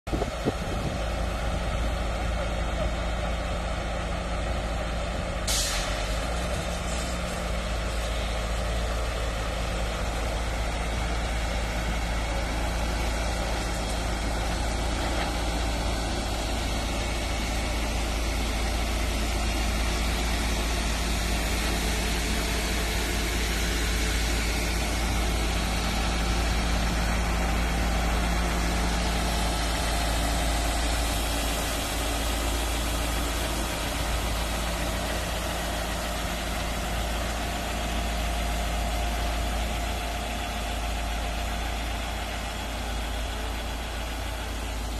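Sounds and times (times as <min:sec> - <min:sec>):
heavy diesel engine hum: 0:00.0 - 0:44.9
short hiss: 0:05.4 - 0:08.2.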